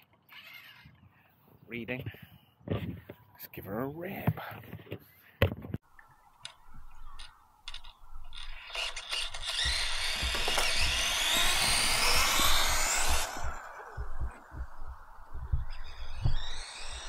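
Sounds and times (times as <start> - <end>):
electric motor whining: 8.3 - 17.0.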